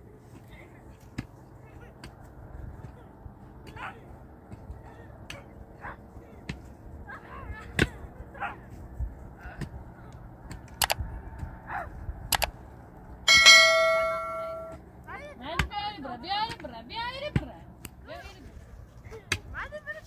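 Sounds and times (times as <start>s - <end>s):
ringing strike on metal: 13.3s - 14.8s.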